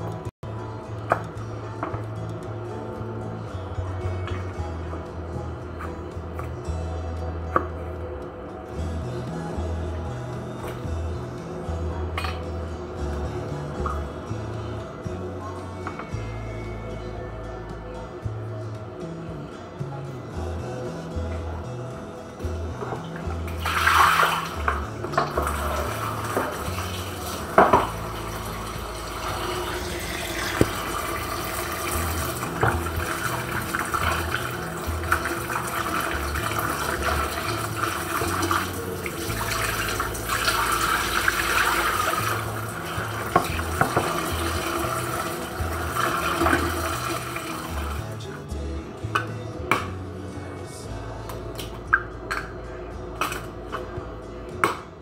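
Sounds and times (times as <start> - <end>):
tap running into plastic basin: 23.6 - 47.9.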